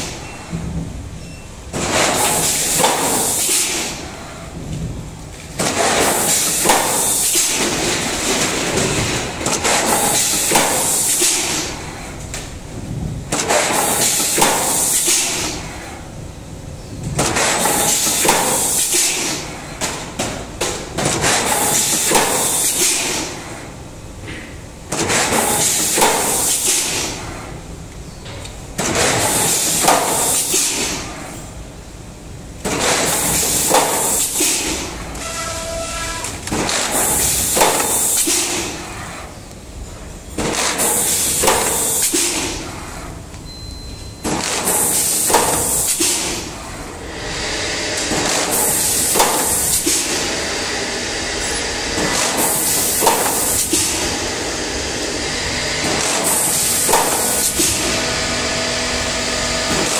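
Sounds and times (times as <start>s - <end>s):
loud air hiss: 2.1s - 4.4s, 6.0s - 7.7s, 9.9s - 11.8s, 17.6s - 19.4s, 21.5s - 23.4s, 29.2s - 31.2s, 33.0s - 36.2s, 36.9s - 39.2s, 40.8s - 42.7s, 44.6s - 50.3s, 52.3s - 58.0s.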